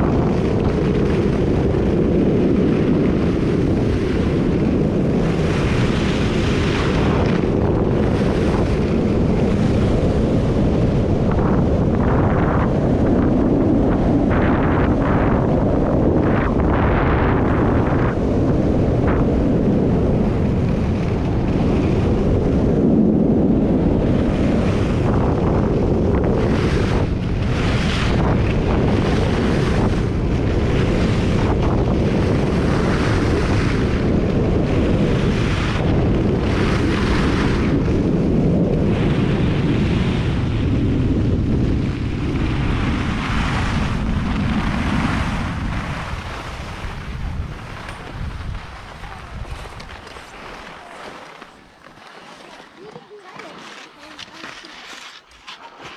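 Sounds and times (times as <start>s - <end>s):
skis carving snow: 0.0s - 10.8s, 19.7s - 23.4s, 24.0s - 40.0s, 41.6s - 55.9s
wind buffeting microphone: 0.0s - 55.9s.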